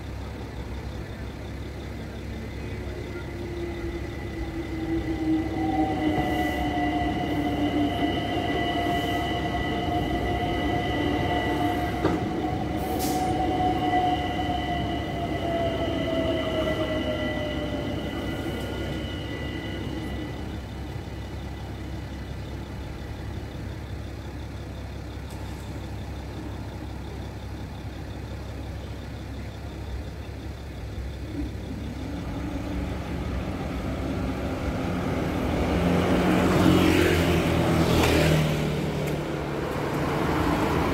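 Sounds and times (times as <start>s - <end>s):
traffic rumble: 0.0s - 40.9s
electric train motors whining: 0.2s - 23.4s, 30.3s - 40.9s
steady high tones: 0.9s - 21.8s
motorcycle and car engines: 16.6s - 40.9s.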